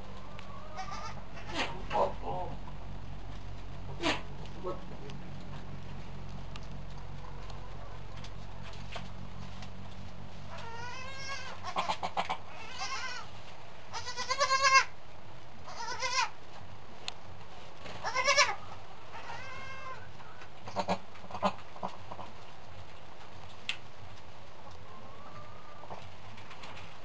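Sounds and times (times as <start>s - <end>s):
goats bleating: 0.8s - 1.6s, 10.5s - 13.3s, 13.9s - 14.9s, 15.7s - 16.3s, 18.0s - 20.0s.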